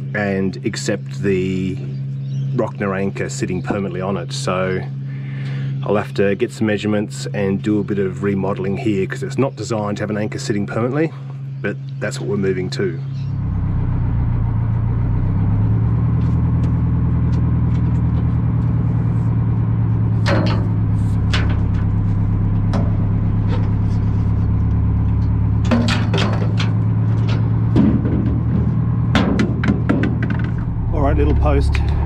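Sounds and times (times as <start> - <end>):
boat engine running: 9.8 - 32.0
mooring gear knocking: 20.0 - 30.9.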